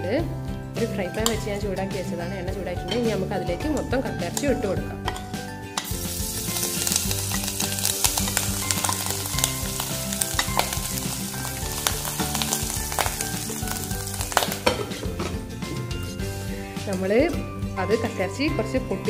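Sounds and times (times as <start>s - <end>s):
metal spoon scraping and stirring: 5.1s - 17.7s
meat sizzling in hot oil: 5.8s - 15.0s.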